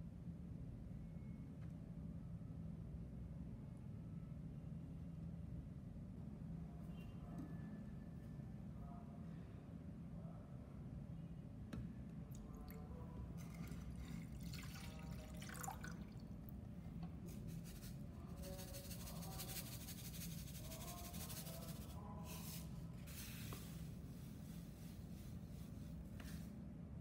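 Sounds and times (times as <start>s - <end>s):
liquid poured into metal saucepan: 12.4s - 16.4s.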